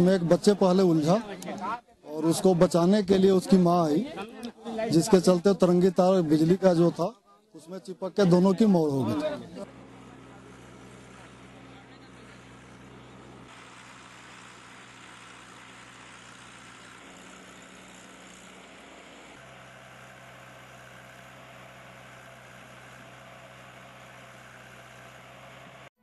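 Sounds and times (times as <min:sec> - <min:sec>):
diesel engine running: 0:08.8 - 0:25.9.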